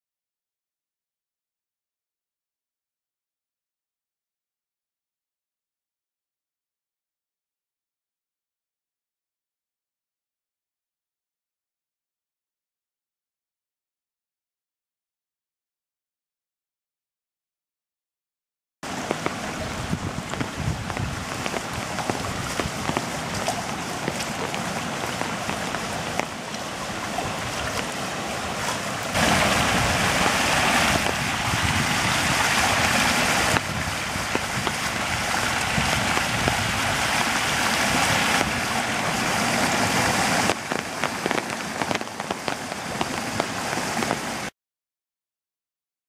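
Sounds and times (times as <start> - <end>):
floodwater rushing: 18.8 - 44.5
rain falling: 18.8 - 44.5
water pouring through a gap: 18.9 - 44.5.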